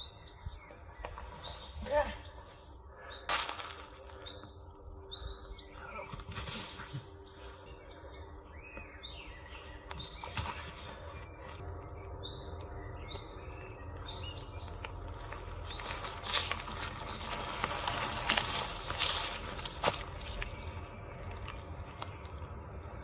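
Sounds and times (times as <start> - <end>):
songbirds chirping: 0.0 - 23.0
tyre crunching over dirt trail: 3.3 - 4.6, 5.6 - 7.6, 14.6 - 22.6.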